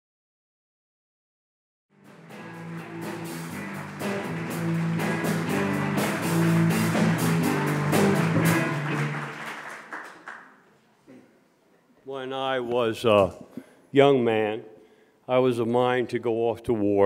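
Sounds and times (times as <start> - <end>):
instrumental music with beat: 2.0 - 9.5.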